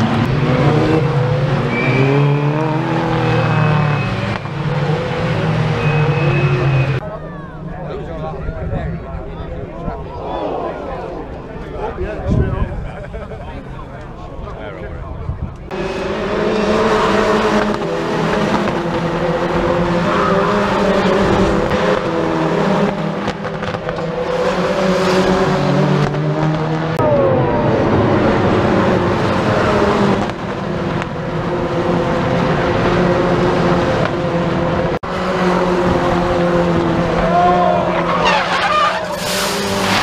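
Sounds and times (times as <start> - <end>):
racing car engines at high revs: 0.0 - 7.0, 15.7 - 40.0
tyres skidding: 0.0 - 7.0, 15.7 - 40.0.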